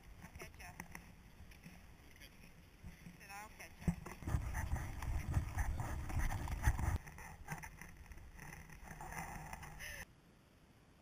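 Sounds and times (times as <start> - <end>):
wind buffeting microphone: 3.8 - 7.0.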